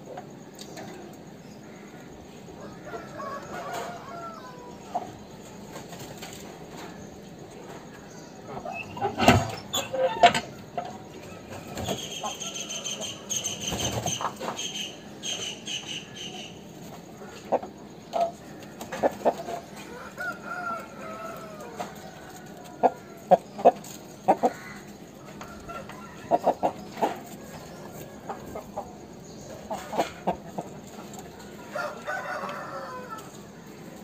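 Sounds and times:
roosters clucking: 0.0 - 34.0
rooster crowing: 2.6 - 4.9, 19.8 - 23.3, 31.6 - 33.7.

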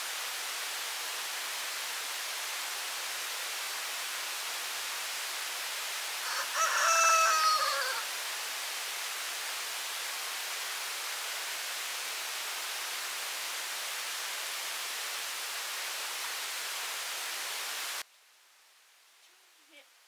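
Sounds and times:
steady hiss: 0.0 - 20.0
rooster crowing: 6.2 - 8.1.

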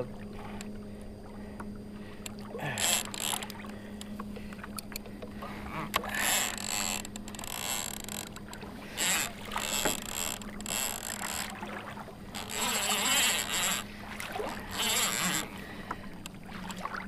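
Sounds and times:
fishing reel bursts: 2.8 - 3.6, 5.7 - 8.3, 9.0 - 11.5, 12.3 - 13.9, 14.5 - 15.4.

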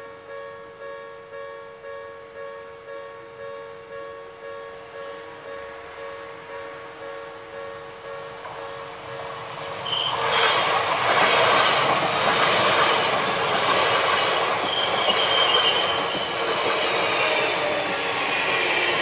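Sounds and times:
electric train passing: 0.0 - 19.0
train wheels clattering on rails: 8.3 - 19.0
wheel squeals: 9.8 - 10.7, 12.9 - 18.0.

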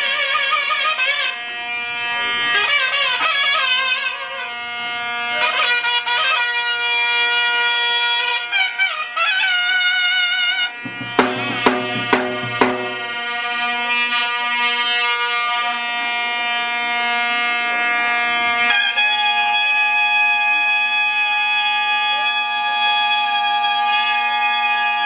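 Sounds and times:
drum beats: 10.8 - 13.2
shawm playing ornamented melody: 10.8 - 13.4.

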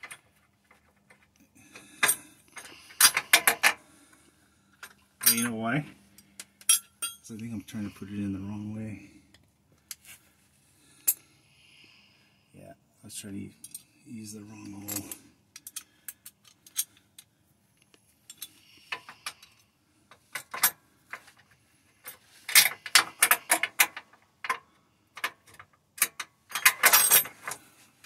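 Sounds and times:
tools clinking on metal: 4.8 - 7.4, 14.6 - 17.0, 25.2 - 27.6.

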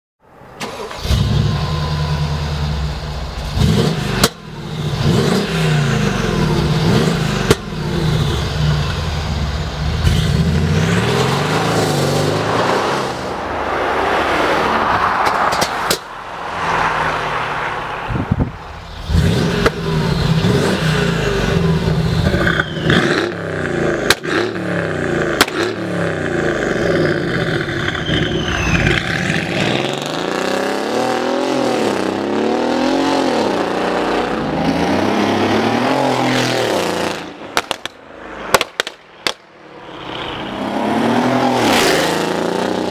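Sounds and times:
car engine revving: 0.6 - 38.6, 39.7 - 42.9
exhaust cracks: 18.4 - 30.1, 36.8 - 39.6.

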